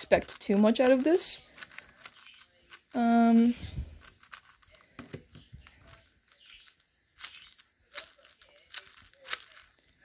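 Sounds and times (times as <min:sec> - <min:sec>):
plastic puzzle cube clacking: 0:00.0 - 0:10.0.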